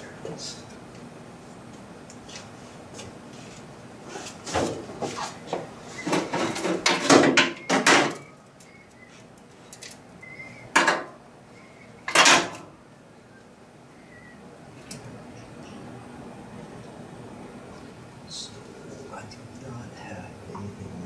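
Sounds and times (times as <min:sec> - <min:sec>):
tools clunking in engine bay: 0:10.8 - 0:11.1, 0:12.1 - 0:12.7.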